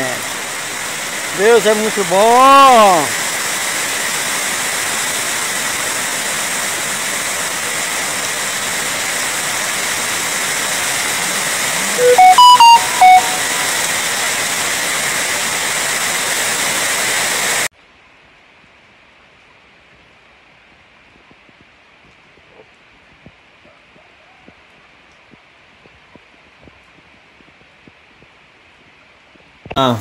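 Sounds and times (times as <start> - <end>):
water pouring over spillway: 0.0 - 17.7
short whistle-like tones: 11.8 - 14.0.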